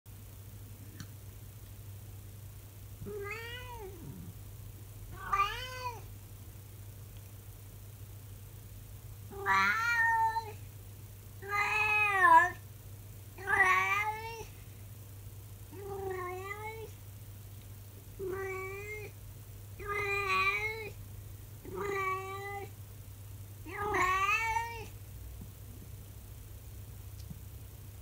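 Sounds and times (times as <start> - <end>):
cat meowing: 3.0 - 4.2, 5.1 - 6.1, 9.3 - 10.6, 11.4 - 12.6, 13.4 - 14.5, 15.8 - 16.9, 18.2 - 19.1, 19.8 - 21.0, 21.7 - 22.7, 23.7 - 24.9.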